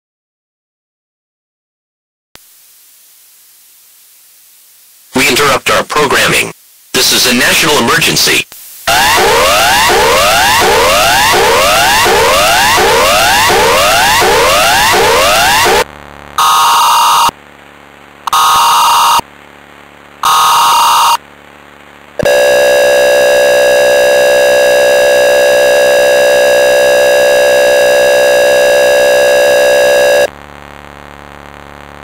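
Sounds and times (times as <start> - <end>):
harsh data bursts: 5.2 - 17.4, 18.2 - 19.3, 20.2 - 21.2
steady attention tone: 8.9 - 17.4, 18.2 - 19.3, 20.2 - 21.2.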